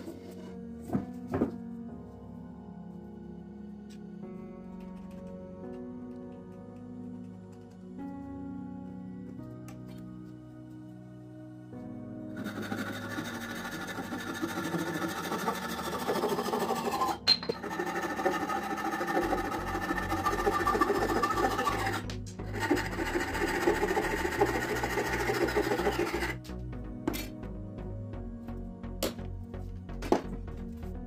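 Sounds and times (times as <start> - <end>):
hand saw cutting wood: 12.4 - 26.4.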